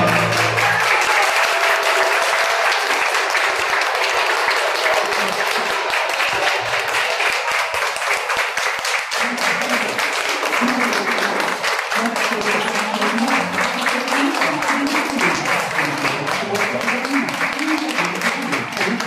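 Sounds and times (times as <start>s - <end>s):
dance music: 0.0s - 1.3s, 9.2s - 19.0s
audience applause: 0.0s - 19.0s
voices: 9.2s - 19.0s.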